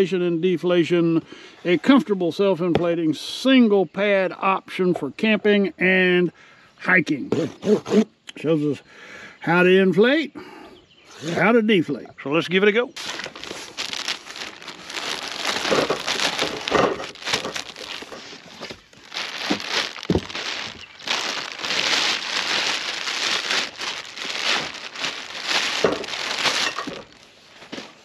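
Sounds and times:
plastic bag crinkling: 13.0s - 27.3s.

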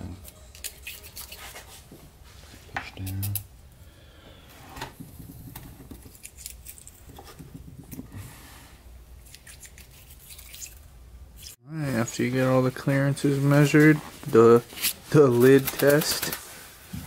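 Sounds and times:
metal blades clicking and scraping: 0.2s - 1.4s.

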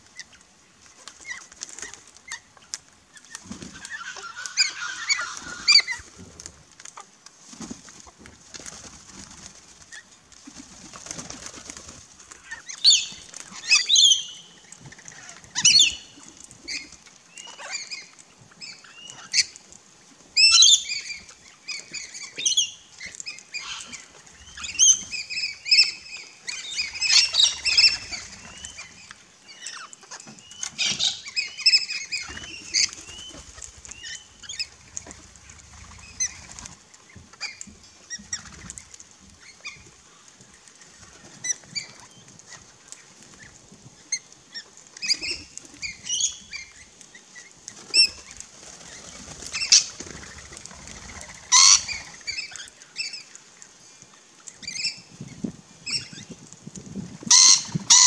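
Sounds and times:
wings flapping: 0.9s - 13.9s, 30.1s - 40.0s, 47.6s - 52.7s
parrots screeching: 3.8s - 6.0s, 51.5s - 53.1s, 57.3s - 58.0s.

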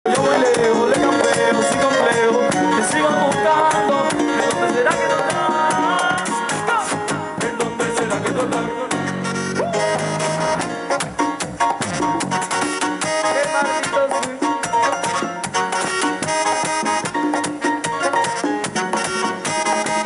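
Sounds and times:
latin dance band playing: 0.0s - 20.0s
congas hand percussion strokes: 0.1s - 20.0s.

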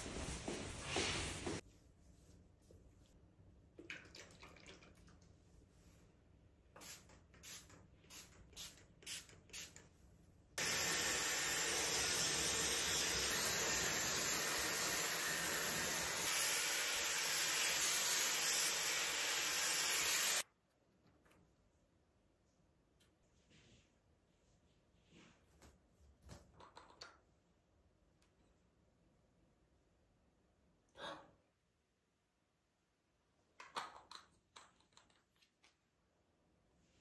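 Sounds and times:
hair dryer blowing: 10.6s - 20.4s.

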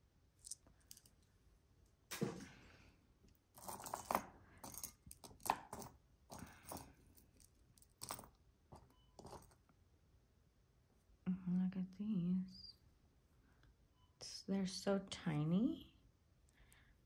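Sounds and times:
jewelry clinking: 0.4s - 1.2s, 3.5s - 9.7s.

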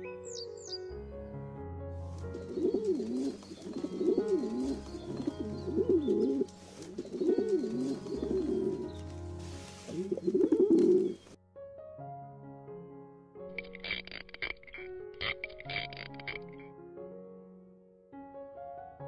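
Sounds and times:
high bird chirp: 0.0s - 0.9s, 2.4s - 9.1s
soft background music: 0.0s - 19.0s
pigeon cooing: 2.3s - 9.0s, 9.8s - 11.3s.

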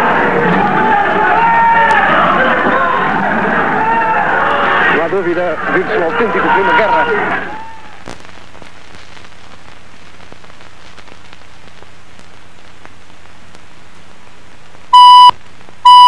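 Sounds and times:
steady hiss: 8.0s - 15.8s
loud high beep: 14.9s - 16.0s.

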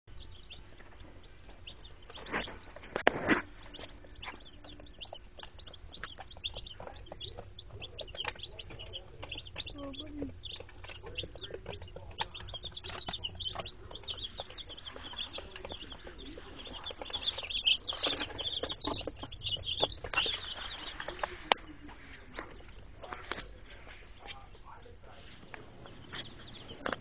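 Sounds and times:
chicks peeping: 0.1s - 27.0s.

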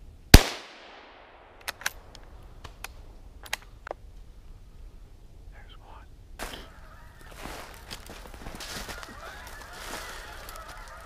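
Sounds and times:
rifle shot echoing: 0.3s - 1.9s.

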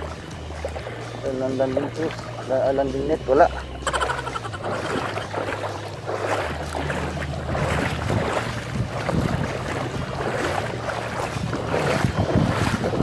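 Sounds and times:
low steady hum: 0.0s - 13.0s
sea water lapping: 0.0s - 13.0s
wind buffeting microphone: 3.9s - 13.0s.

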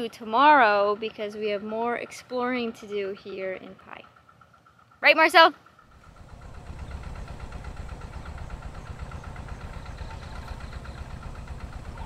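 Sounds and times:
dense low rumble: 5.9s - 12.0s.

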